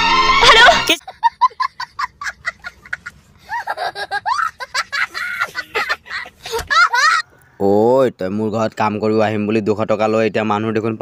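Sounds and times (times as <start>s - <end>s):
boy laughing: 0.4s - 7.4s.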